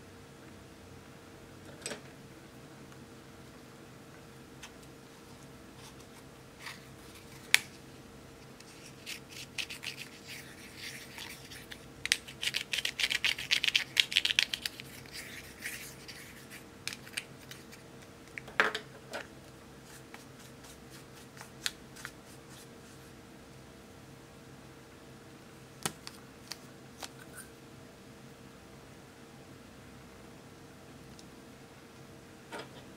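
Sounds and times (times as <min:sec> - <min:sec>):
spatula scraping powder makeup: 0:08.6 - 0:17.8.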